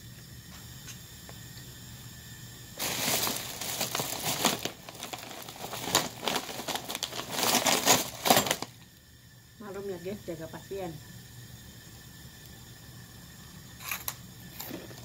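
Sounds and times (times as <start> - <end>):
plastic bag rustling and crinkling: 2.8 - 8.8.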